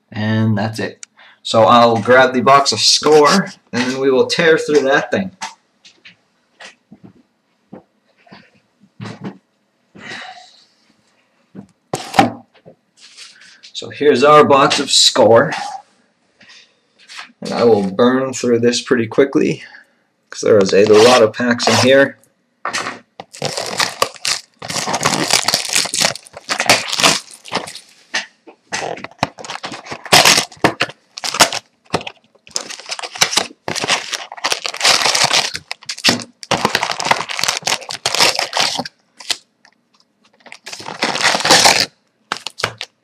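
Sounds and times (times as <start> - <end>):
shrink wrap tearing: 23.2 - 27.9, 28.8 - 39.5, 40.3 - 43.0
foil packs crinkling: 23.2 - 28.0, 28.8 - 43.0.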